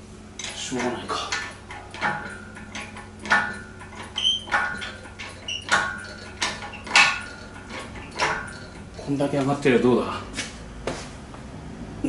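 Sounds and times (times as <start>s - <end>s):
metal clanks of hoist chains: 0.4s - 9.8s.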